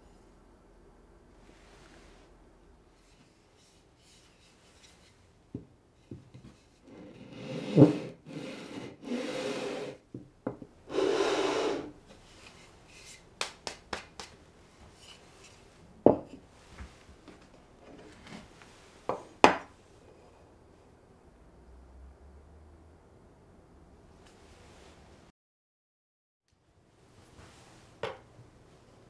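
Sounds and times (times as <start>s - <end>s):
plywood rubbed on sandpaper: 7.1s - 10.0s, 10.9s - 11.9s.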